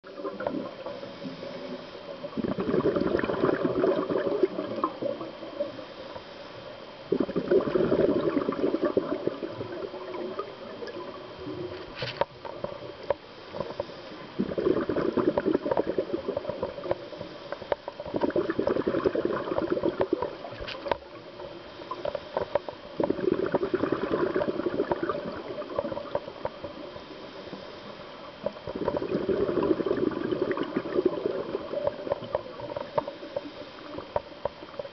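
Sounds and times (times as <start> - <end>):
bubbling exhaust bursts: 2.3 - 5.2, 7.1 - 10.5, 14.4 - 16.9, 28.8 - 32.8.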